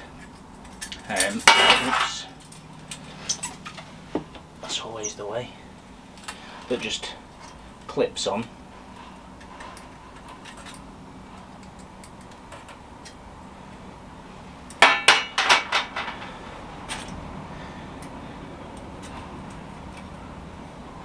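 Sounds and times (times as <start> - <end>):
metal clanking on worktop: 1.2 - 2.2, 14.8 - 16.3
clicks of metal parts handled: 9.4 - 13.2, 16.9 - 17.2.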